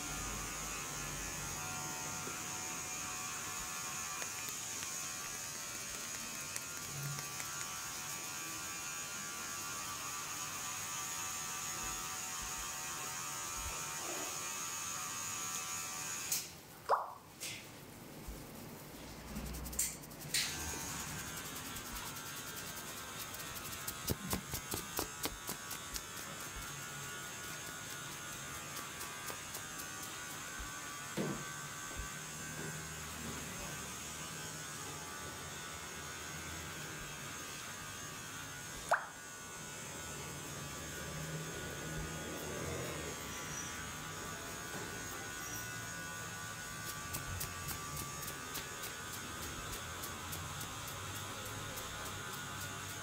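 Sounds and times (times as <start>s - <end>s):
fingers rubbing through hair: 3.3s - 9.4s, 18.1s - 31.0s, 46.5s - 53.0s.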